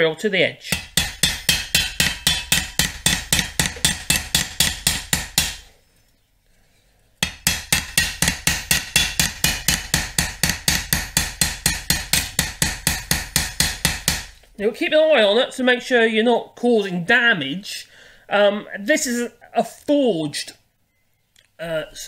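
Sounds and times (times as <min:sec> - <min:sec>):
hammer tapping metal blade: 0:00.7 - 0:05.7, 0:07.2 - 0:14.4.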